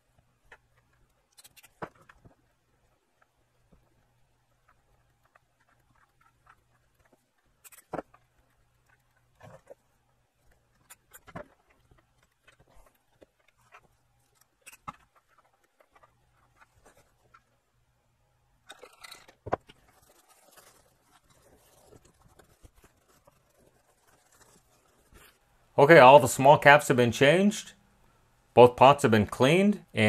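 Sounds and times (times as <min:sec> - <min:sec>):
faint steady hum: 0:00.0 - 0:30.0.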